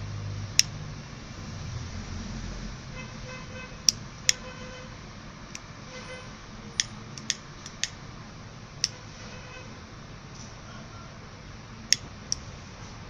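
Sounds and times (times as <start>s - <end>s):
lighter clicks: 6.8s - 8.0s.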